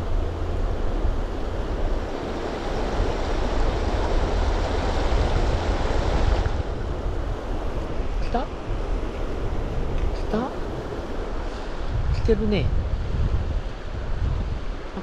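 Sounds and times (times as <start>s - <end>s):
river rushing over stones: 0.0s - 8.7s
wind buffeting microphone: 0.0s - 15.0s.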